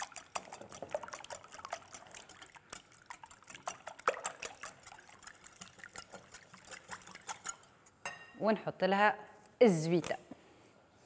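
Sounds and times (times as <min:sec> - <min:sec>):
whisk clicking against glass bowl: 0:00.0 - 0:07.7
eggs sloshing: 0:00.0 - 0:08.0.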